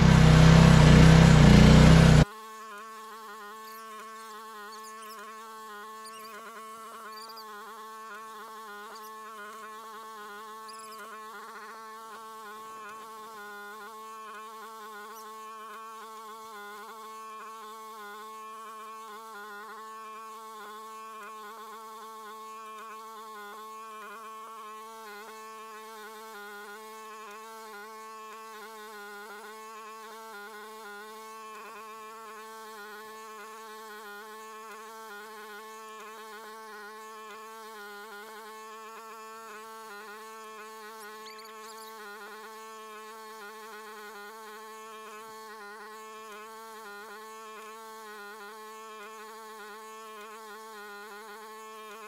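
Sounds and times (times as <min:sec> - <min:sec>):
excavator engine at full throttle: 0:00.0 - 0:02.2.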